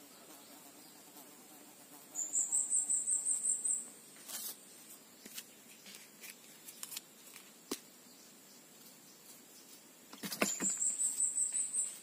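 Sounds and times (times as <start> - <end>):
faint insect drone: 0.0 - 12.0
high-pitched pulsing insect call: 2.1 - 4.9, 8.1 - 12.0.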